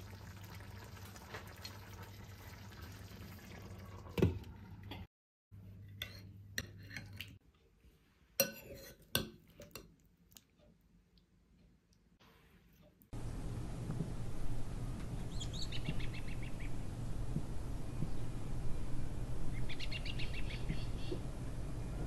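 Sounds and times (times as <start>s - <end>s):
cutlery clinking on dish: 8.4s - 9.9s
spoon clinking against pan: 8.4s - 9.9s
steady low hum: 13.2s - 22.0s.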